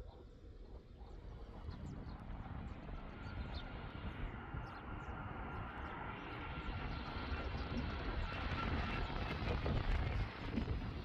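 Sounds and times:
jet engine whine: 0.0s - 11.0s.

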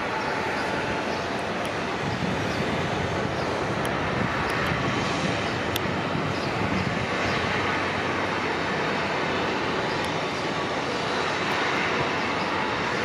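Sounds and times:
jet aircraft engines running: 0.0s - 13.0s.

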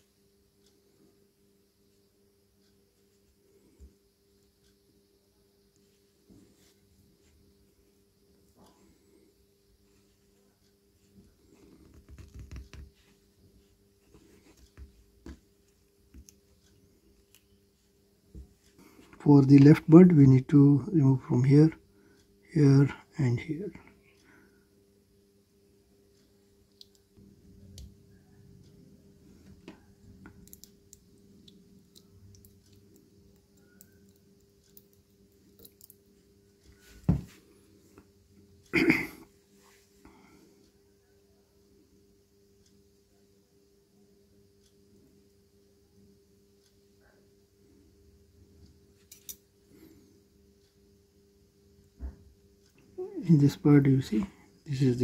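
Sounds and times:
clicks and scratches on plastic: 11.4s - 15.4s.

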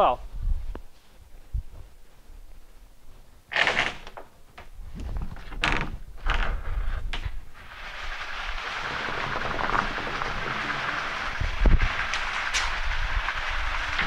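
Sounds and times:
mechanical rushing noise: 7.4s - 14.0s.

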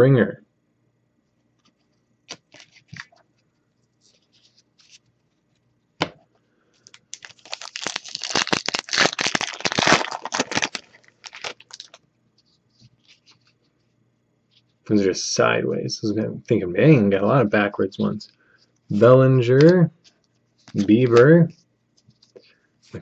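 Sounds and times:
foil wrapper tearing and crinkling: 2.3s - 3.1s, 6.9s - 12.0s.

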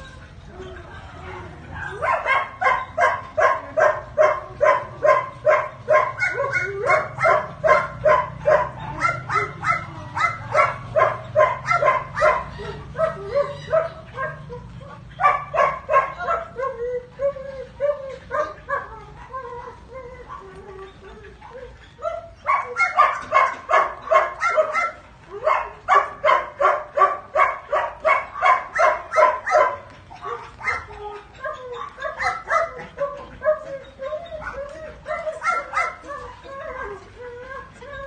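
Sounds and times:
dog barking rapidly: 1.8s - 14.6s, 15.2s - 16.5s, 22.5s - 30.9s
dog whining: 1.8s - 38.0s.

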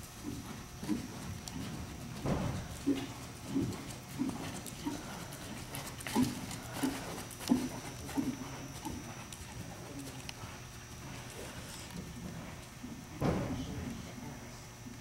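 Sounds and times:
horse hoofbeats on soft footing: 0.0s - 13.7s.

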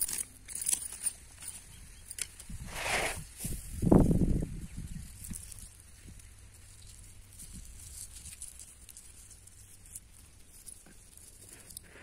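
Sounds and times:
dry soil scraping under hand: 2.4s - 3.9s.

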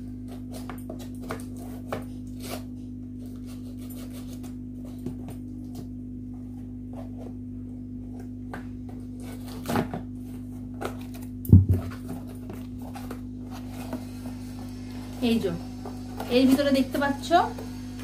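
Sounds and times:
cardboard box thump: 11.5s - 12.2s.

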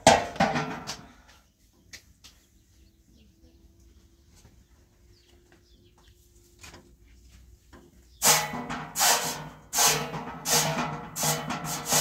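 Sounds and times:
broom sweeping concrete floor: 8.2s - 12.0s.

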